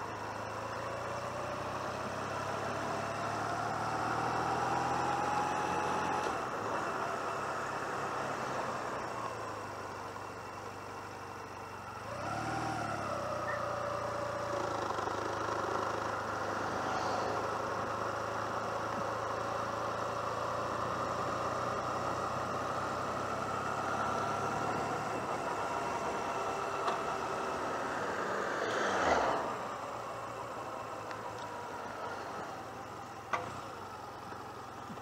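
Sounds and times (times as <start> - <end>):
motorcycle engine pulling away: 11.7 - 35.0.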